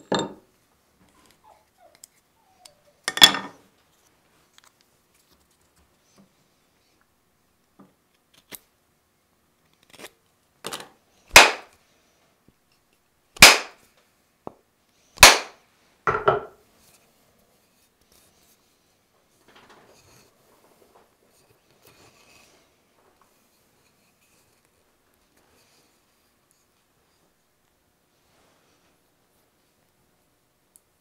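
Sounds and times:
hammer head knocking onto handle: 16.1 - 16.6.

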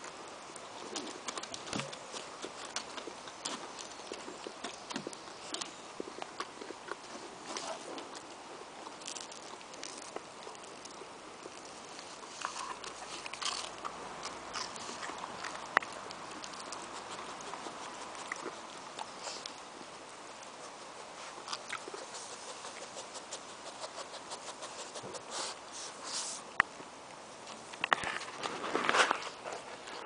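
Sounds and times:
dog chewing a treat: 0.6 - 25.6
dog sniffing: 16.3 - 19.6, 20.6 - 26.5.

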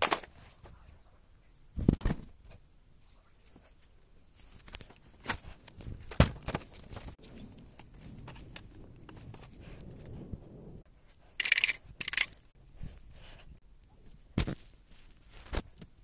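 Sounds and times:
cardboard rustling: 4.3 - 9.8
cardboard packaging knocks: 6.1 - 6.7.

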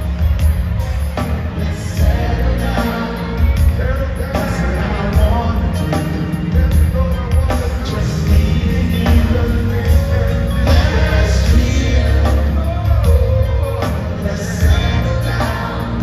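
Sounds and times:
live band with heavy bass: 0.0 - 16.0
lead vocal singing: 1.0 - 16.0.

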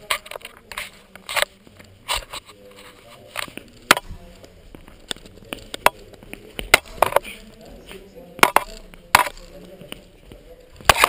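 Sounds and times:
footwork knocks and scuffs on floor: 3.5 - 11.0.

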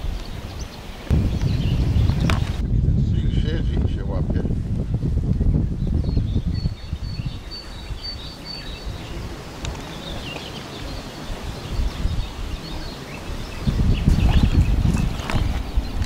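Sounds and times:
bird chirping: 0.0 - 2.6, 5.5 - 16.0
wind rumbling on microphone: 0.0 - 16.0.

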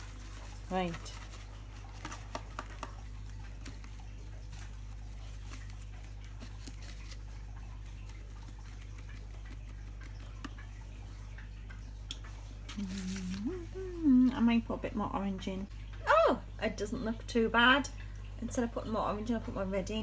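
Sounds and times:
brush tapping plastic tub: 0.0 - 6.6
steady low hum: 0.0 - 20.0.

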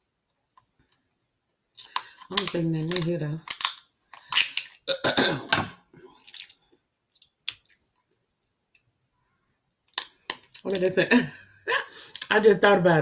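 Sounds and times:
scissors cracking crab shell: 1.8 - 4.8.

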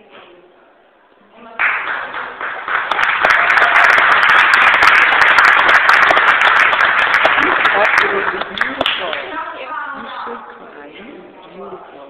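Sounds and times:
audience applauding: 1.6 - 9.3.

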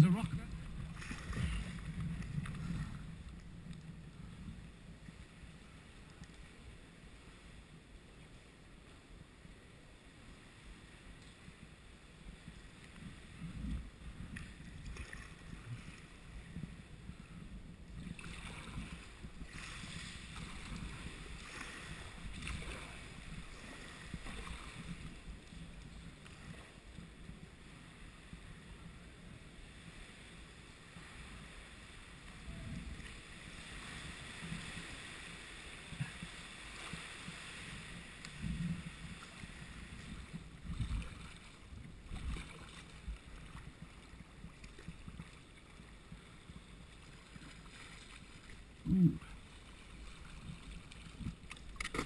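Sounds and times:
paddle blades splashing: 0.0 - 7.4, 18.1 - 28.4, 30.8 - 52.0
water lapping around hull: 0.0 - 52.0.

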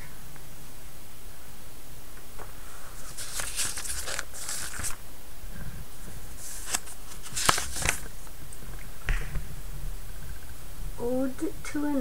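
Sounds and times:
book pages turning: 2.7 - 5.0, 6.0 - 8.4.

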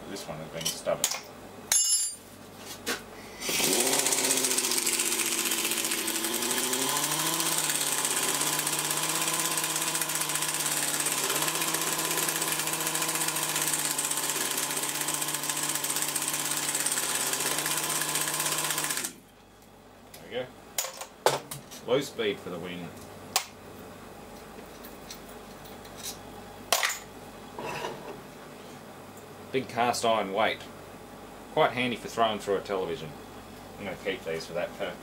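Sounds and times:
pneumatic impact wrench hammering: 3.5 - 19.1.

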